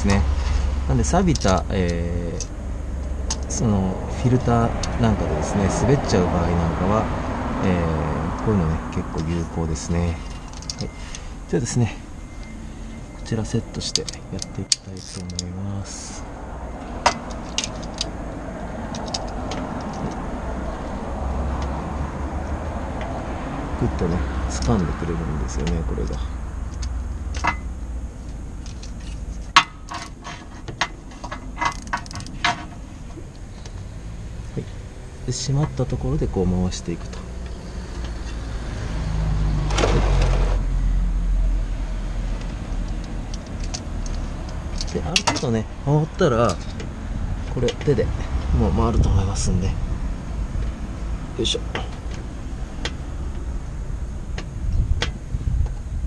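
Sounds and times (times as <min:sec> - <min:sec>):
wrench clicks and knocks: 0:18.9 - 0:20.2, 0:29.6 - 0:32.8
light ratchet clicks: 0:31.2 - 0:32.4.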